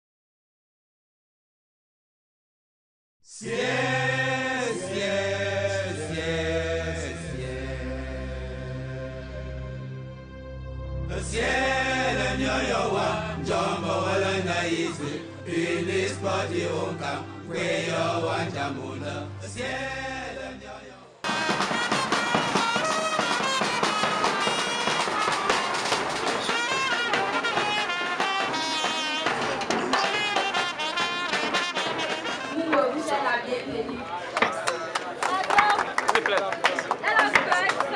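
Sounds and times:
chanted singing: 3.3 - 9.8, 11.1 - 21.1
sustained bass notes: 4.0 - 22.1
bass drum beats: 21.2 - 32.5
trumpet playing held notes: 21.2 - 32.8.

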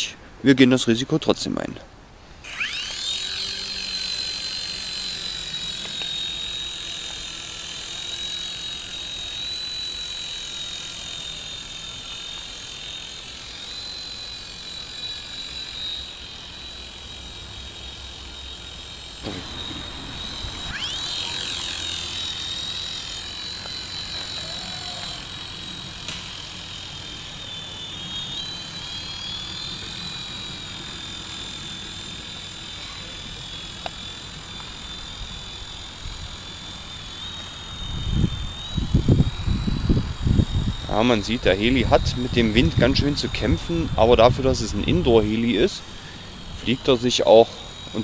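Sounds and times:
toy helicopter rotors whining: 2.4 - 48.0.

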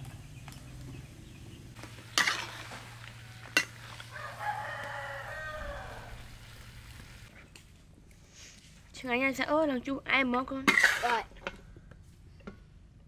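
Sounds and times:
metal spatula clanking on wok: 2.1 - 2.7
rooster crowing: 2.8 - 6.6.

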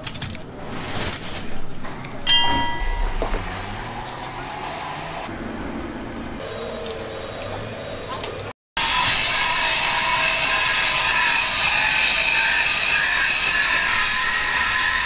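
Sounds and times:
tyre shop background noise: 0.0 - 15.0
short ringing tone: 2.3 - 3.4.

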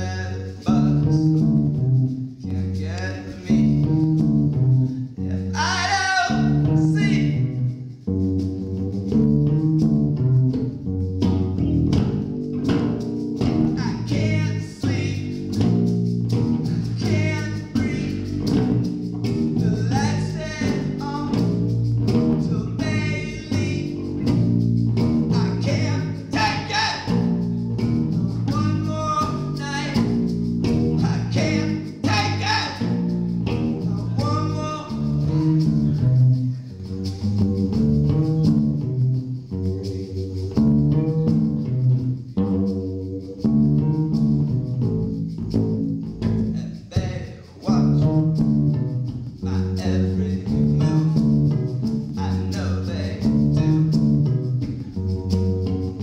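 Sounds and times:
man singing: 0.0 - 1.5, 2.4 - 4.0, 5.2 - 7.6, 13.6 - 15.8, 16.5 - 18.9, 19.6 - 24.5, 25.2 - 36.9, 46.4 - 48.2, 49.4 - 51.4, 52.2 - 53.7
plucked acoustic bass guitar: 0.0 - 56.0.

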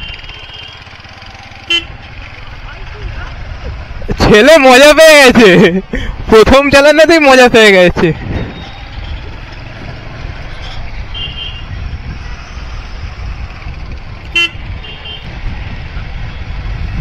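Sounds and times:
vehicle horn toots: 0.0 - 1.0, 1.6 - 2.0, 11.1 - 11.7, 14.3 - 15.3
road traffic rumble: 0.0 - 17.0.

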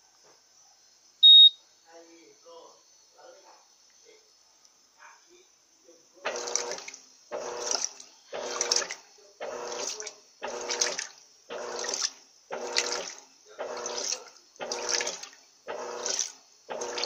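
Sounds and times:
washing machine motor whirring: 6.2 - 17.0
water sloshing: 7.6 - 9.0, 9.7 - 13.2.

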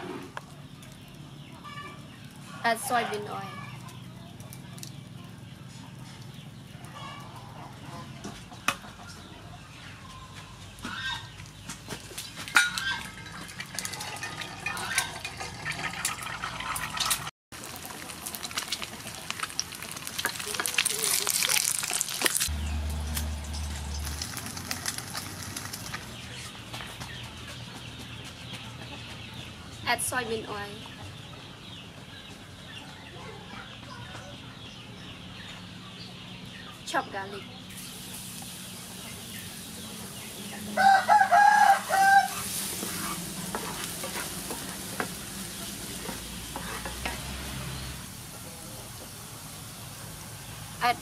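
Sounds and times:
oil crackling in a frying pan: 0.4 - 8.9, 10.8 - 26.4, 37.7 - 51.0
wooden spatula scraping a pan: 12.4 - 17.3, 40.8 - 48.0
rooster crowing: 40.5 - 43.3.

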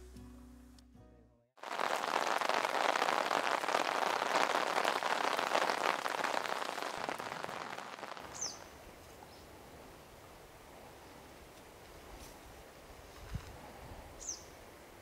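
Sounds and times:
heavy rain: 1.6 - 8.8.

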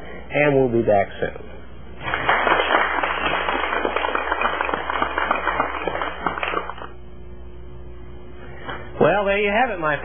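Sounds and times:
audience applauding: 2.0 - 7.0.

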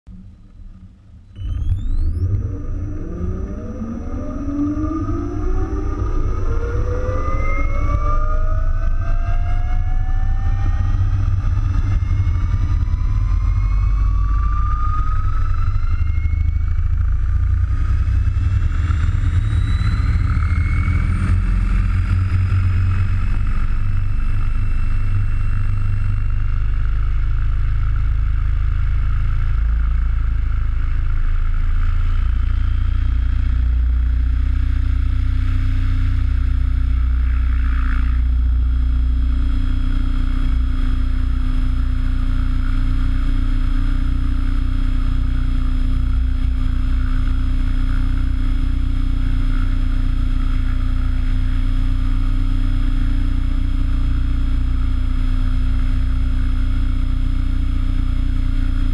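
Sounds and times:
low rumble of rotor downwash: 0.0 - 58.9
helicopter motor and rotor whine: 1.3 - 27.2.

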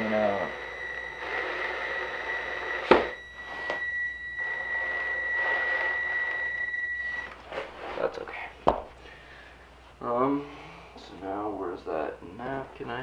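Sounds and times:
cordless drill motor whine: 0.0 - 7.5.

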